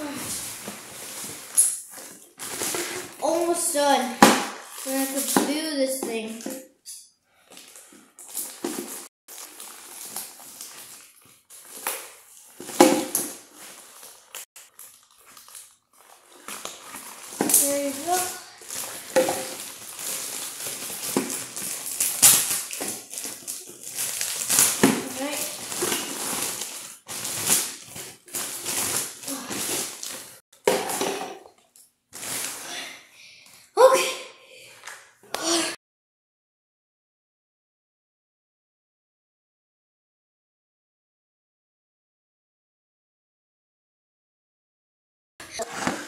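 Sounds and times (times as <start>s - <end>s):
toy packaging rustling: 0.3s - 6.4s, 7.6s - 31.2s
packaging being torn by hand: 18.7s - 30.3s.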